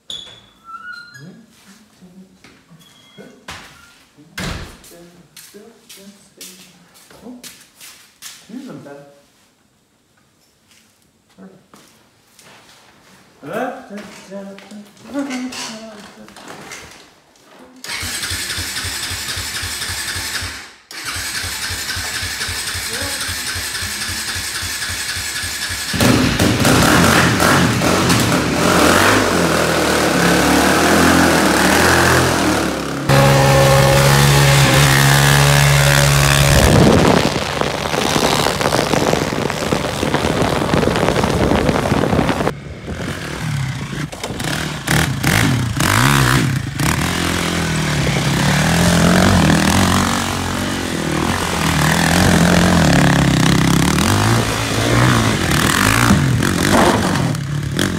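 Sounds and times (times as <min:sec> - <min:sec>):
quad engine revving hard: 0:17.9 - 0:57.9.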